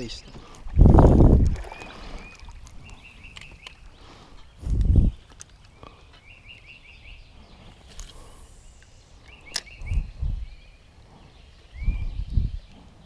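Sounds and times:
bird chirping: 1.6 - 13.0
sharp clicks: 8.8 - 10.1.

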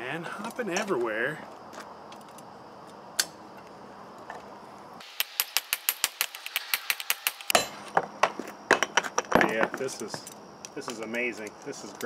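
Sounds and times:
hammer striking metal on anvil: 5.1 - 7.8.

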